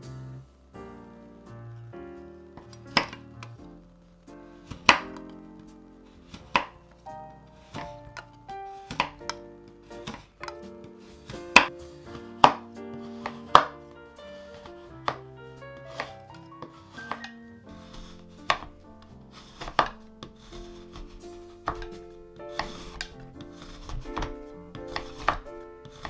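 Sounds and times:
background music with held notes: 0:00.0 - 0:26.0
knife chopping chocolate on board: 0:02.6 - 0:03.2, 0:04.7 - 0:05.2, 0:06.3 - 0:06.8, 0:07.7 - 0:13.8, 0:15.8 - 0:26.0.

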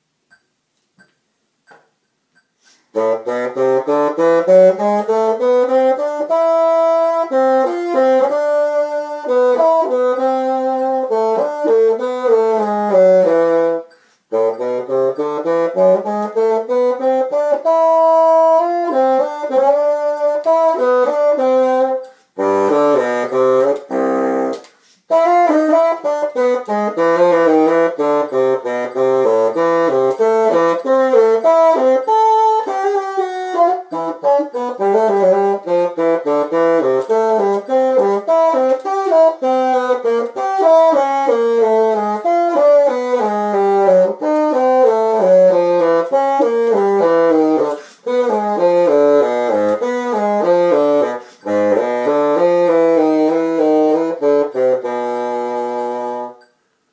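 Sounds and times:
bassoon playing quick runs: 0:02.9 - 0:56.4.

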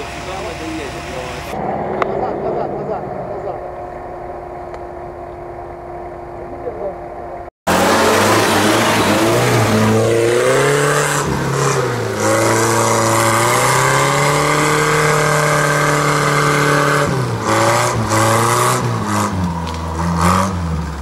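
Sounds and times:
off-road vehicle engine revving: 0:07.7 - 0:21.0.

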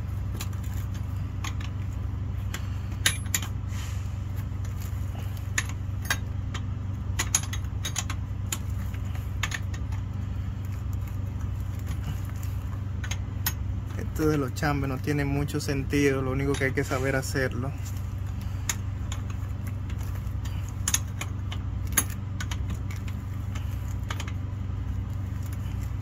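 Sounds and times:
low engine hum: 0:00.0 - 0:26.0
wrench clinking on metal: 0:03.0 - 0:03.5, 0:07.2 - 0:08.6.

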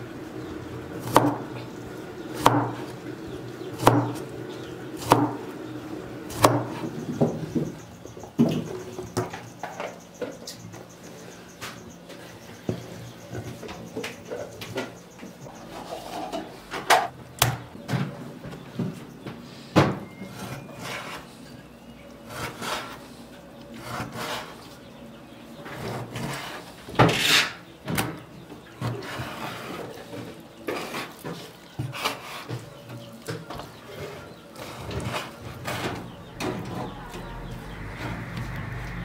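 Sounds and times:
knife scraping and rubbing: 0:20.3 - 0:21.4, 0:23.8 - 0:24.7.

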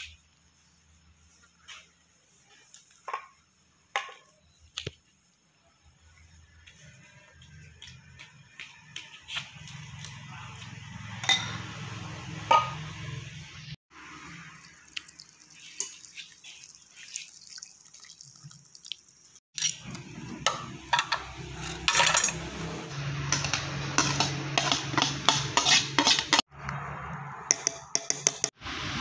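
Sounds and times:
metal spoons clinking against a bowl: 0:11.2 - 0:11.6.

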